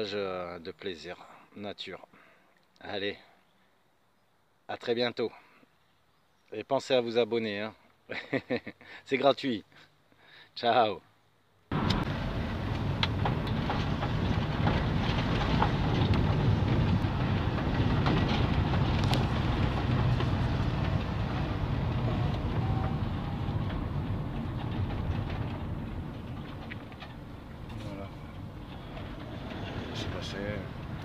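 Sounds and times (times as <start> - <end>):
car road and engine noise: 11.7 - 31.0
knocks and rattles in car: 11.7 - 31.0.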